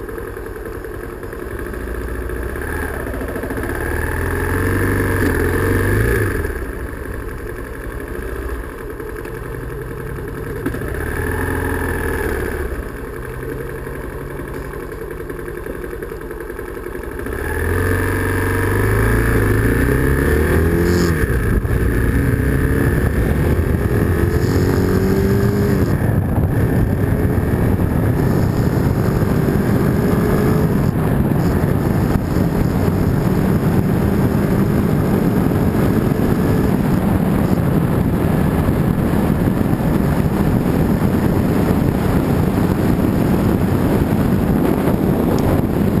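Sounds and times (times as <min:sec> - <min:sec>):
motorcycle engine hum: 0:00.0 - 0:46.0
wind rush on microphone: 0:18.5 - 0:46.0.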